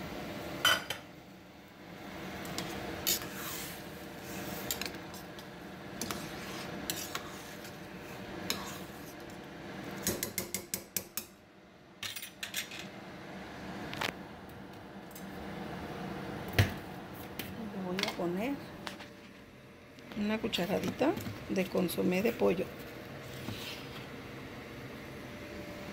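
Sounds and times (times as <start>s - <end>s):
metal spoon stirring in pot: 2.5s - 9.3s.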